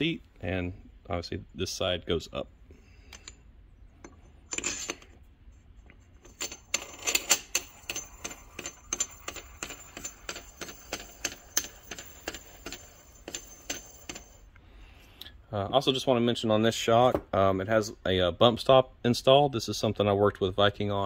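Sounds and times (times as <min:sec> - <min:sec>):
metal parts scraping: 0:03.1 - 0:14.5.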